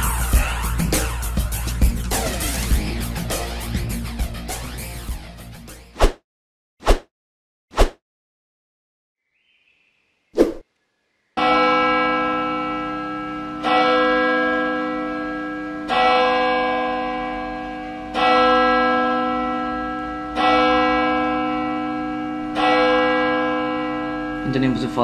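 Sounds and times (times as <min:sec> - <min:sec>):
church bell tolling: 0:11.4 - 0:25.0.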